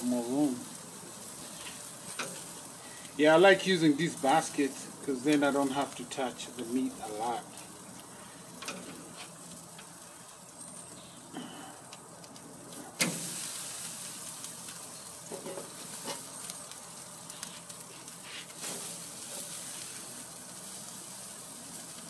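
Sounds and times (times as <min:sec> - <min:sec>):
meat sizzling on a grill: 0:00.0 - 0:22.0.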